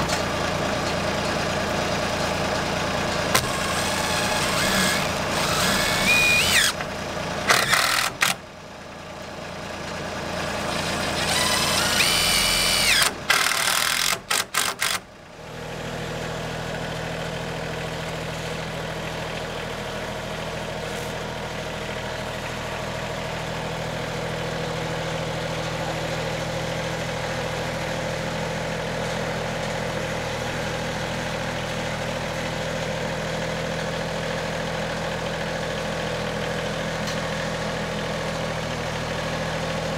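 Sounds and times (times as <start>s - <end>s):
tractor engine idling: 0.0s - 39.9s
cordless driver whining: 3.3s - 8.4s, 11.1s - 15.0s.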